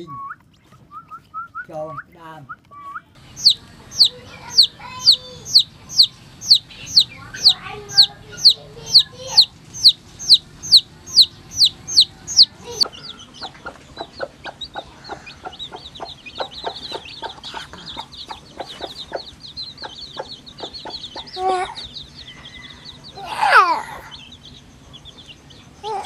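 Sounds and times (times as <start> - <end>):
chicks cheeping softly: 2.8 - 26.0
hen calling: 3.2 - 21.9
hen clucking: 3.2 - 25.2
chick peeping loudly: 3.2 - 26.0.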